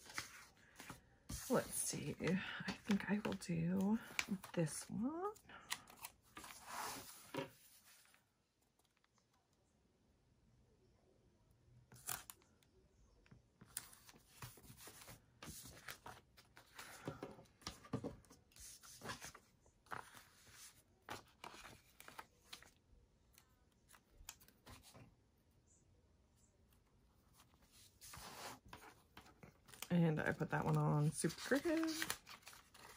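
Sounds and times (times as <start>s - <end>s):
stickers peeling and paper rustling: 28.8s - 32.9s.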